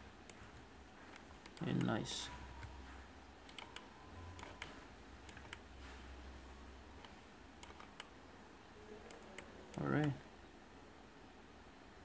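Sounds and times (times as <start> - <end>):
steady low hum: 0.0 - 12.0
keyboard and mouse clicks: 0.2 - 2.8, 3.4 - 5.7, 7.0 - 8.1.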